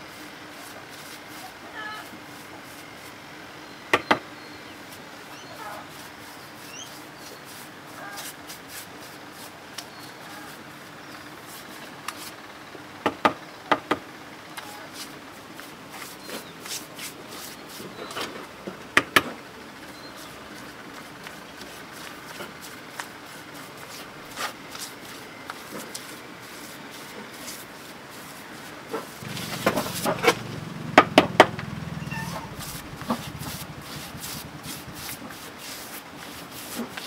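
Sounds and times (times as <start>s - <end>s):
brush strokes on concrete: 0.0s - 3.2s, 4.8s - 10.8s, 11.4s - 12.4s, 14.7s - 18.2s, 20.1s - 30.6s, 31.9s - 37.0s
faint chirps: 31.9s - 34.2s.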